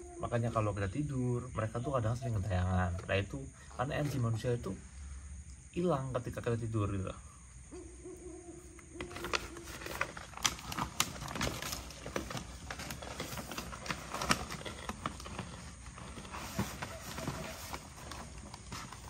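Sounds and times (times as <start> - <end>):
backpack rustling: 9.0 - 19.0
snack bag crackling: 9.0 - 19.0.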